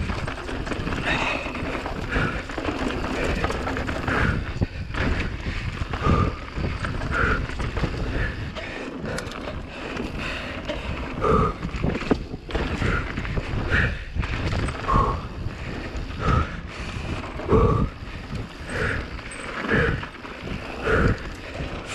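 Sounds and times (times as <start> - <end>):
bike frame rattling and knocking: 0.0 - 21.9
tyres rumbling over dirt: 0.0 - 21.9
wind on microphone: 0.0 - 21.9.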